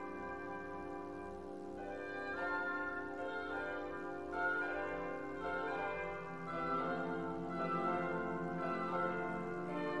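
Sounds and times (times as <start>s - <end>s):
instrumental classical music: 0.0s - 10.0s.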